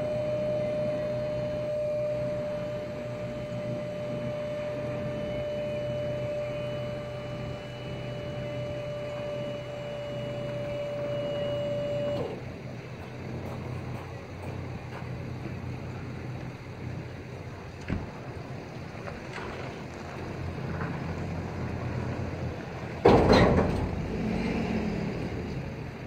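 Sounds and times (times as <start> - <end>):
hydraulic pump whining: 0.0 - 18.1.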